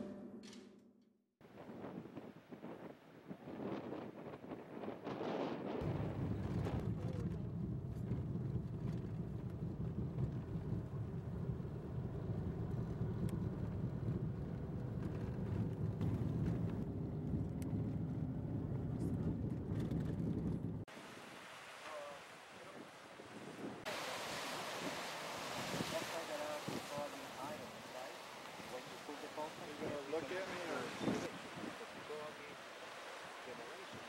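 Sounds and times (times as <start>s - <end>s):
vehicle engine and tyres rumbling: 5.8s - 20.9s.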